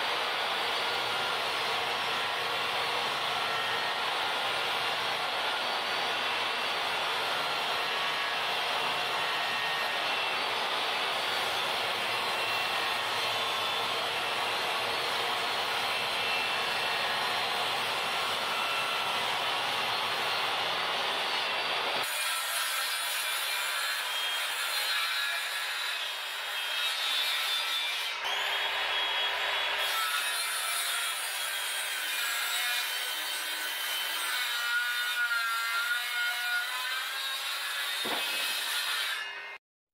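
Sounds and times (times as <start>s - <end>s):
circular saw cutting board: 33.6s - 39.4s
table saw ripping board: 37.6s - 39.3s.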